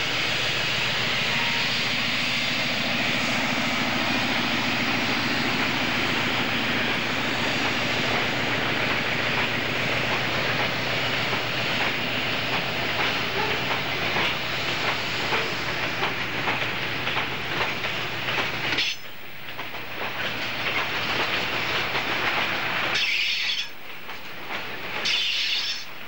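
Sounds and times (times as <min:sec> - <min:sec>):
train wheels clattering over rail joints: 0:05.0 - 0:26.0.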